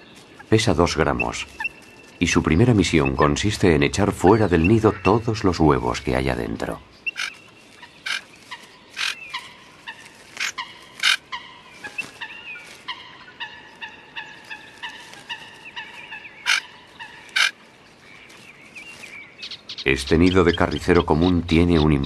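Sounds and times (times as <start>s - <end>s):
sharp bird calls: 0.0s - 22.0s
small birds whistling: 6.9s - 11.2s, 14.4s - 22.0s.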